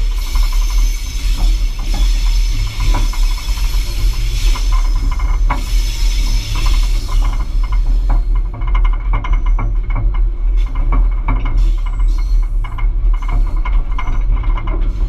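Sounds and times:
hiss: 0.0s - 8.1s
diesel locomotive engine rumble: 0.0s - 15.0s
wheels clicking and rattling on track: 0.0s - 15.0s.

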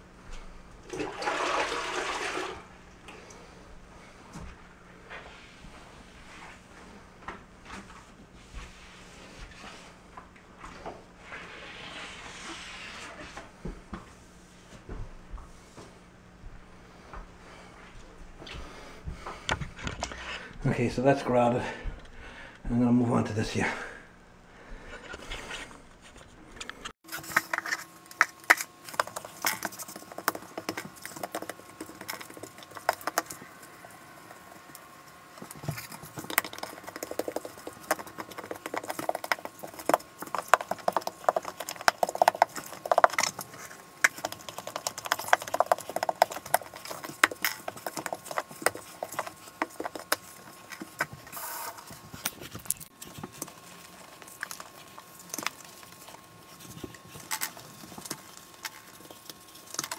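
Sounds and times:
grout float scraping tiles: 11.2s - 13.4s.

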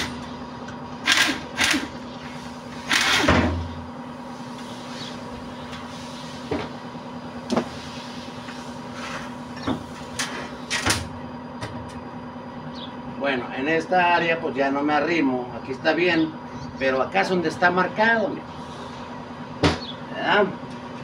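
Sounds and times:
steady hum: 0.0s - 21.0s
pneumatic wrench spinning: 1.0s - 2.0s, 2.7s - 3.5s.

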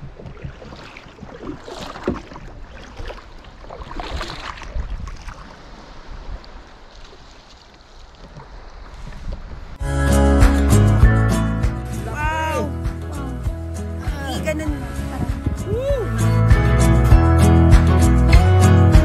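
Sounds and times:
wind on microphone: 0.0s - 7.0s, 8.2s - 9.8s, 14.6s - 16.4s.

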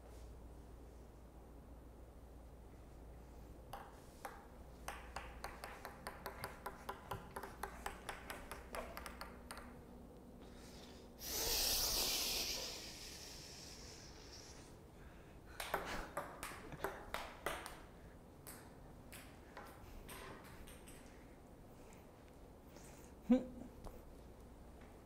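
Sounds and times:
ping-pong ball bouncing: 3.7s - 9.9s, 15.6s - 21.1s
loud rushing hiss: 11.2s - 14.6s.

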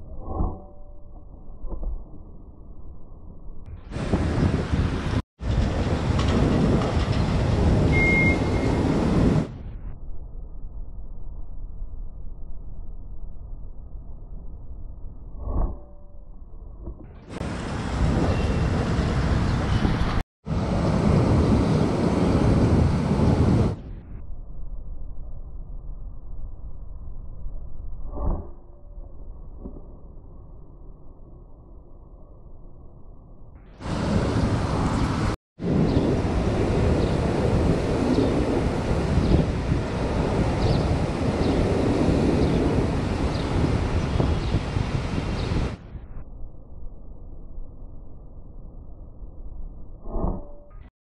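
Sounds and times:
wind buffeting microphone: 3.8s - 9.7s, 17.3s - 23.9s, 33.8s - 46.0s.

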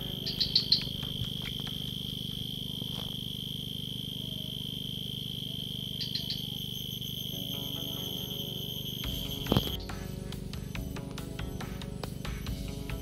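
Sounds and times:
high chirps: 0.0s - 10.2s
insects droning: 0.0s - 13.0s
low steady hum: 0.0s - 13.0s.

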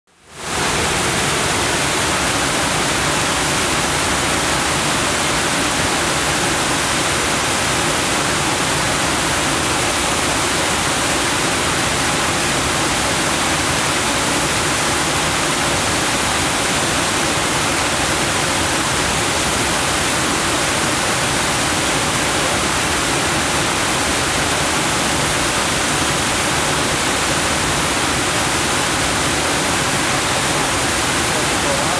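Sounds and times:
waterfall roaring: 0.1s - 31.9s.

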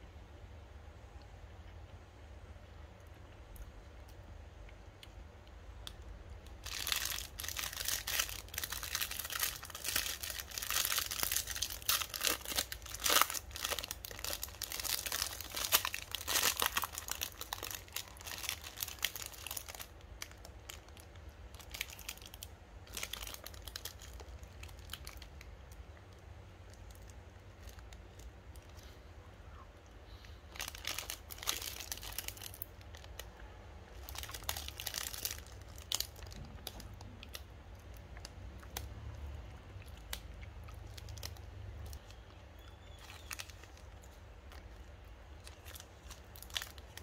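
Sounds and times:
foil wrapper tearing and crinkling: 6.6s - 21.0s, 21.6s - 25.3s, 30.6s - 33.2s, 34.0s - 37.4s, 42.9s - 44.6s, 45.4s - 47.0s.

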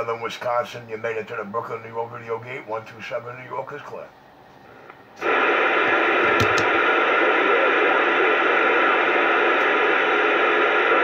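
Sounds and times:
radio static hiss: 0.0s - 11.0s
brief radio pops: 6.3s - 6.9s.

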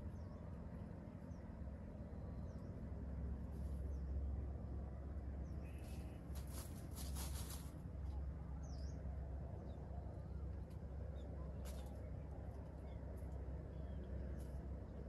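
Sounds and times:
steady low rumble: 0.0s - 15.0s
bird chirp: 5.4s - 6.3s
rustling in dry leaves: 5.8s - 8.2s.

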